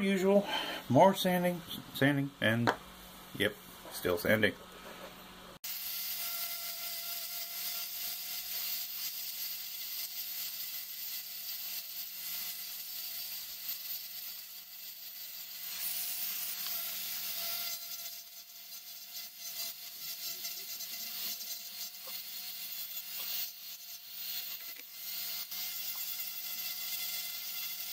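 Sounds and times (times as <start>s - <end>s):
rotary tool sanding wood: 5.6s - 27.9s.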